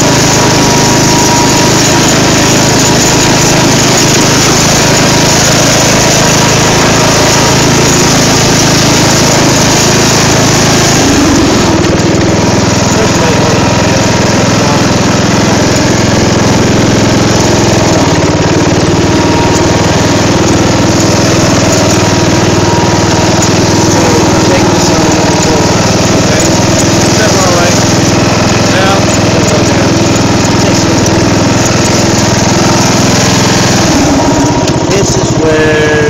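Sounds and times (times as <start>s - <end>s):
lawn mower engine running: 0.0s - 36.0s.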